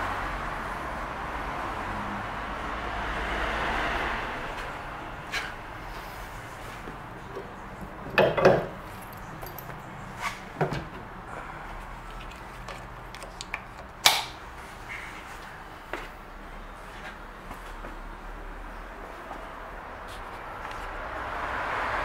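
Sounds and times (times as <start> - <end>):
metal clunks and clicks of tow ball: 7.3 - 8.8.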